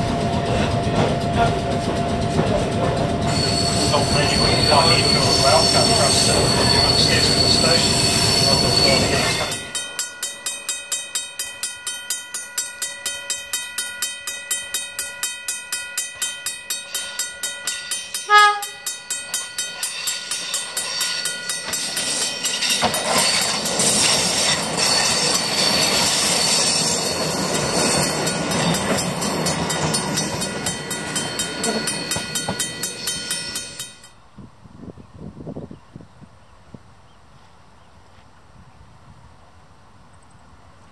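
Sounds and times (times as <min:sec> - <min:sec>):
train wheels rushing on rail: 0:00.0 - 0:11.6, 0:16.1 - 0:34.1
rapid ringing bell: 0:03.2 - 0:34.1
train horn toot: 0:03.3 - 0:09.7, 0:18.2 - 0:19.0.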